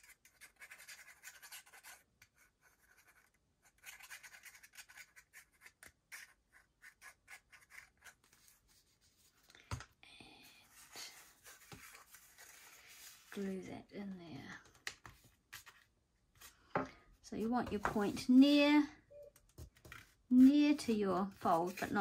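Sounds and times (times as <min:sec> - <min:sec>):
paper rustling and scraping: 0:10.6 - 0:13.6, 0:14.6 - 0:16.6, 0:17.7 - 0:18.3, 0:19.6 - 0:22.0.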